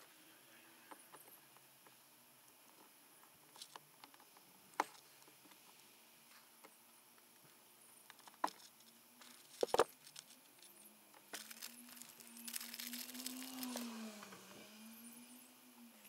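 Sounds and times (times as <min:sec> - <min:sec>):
faint steady hum: 0:00.0 - 0:16.0
paper tissue rustling: 0:11.4 - 0:14.0.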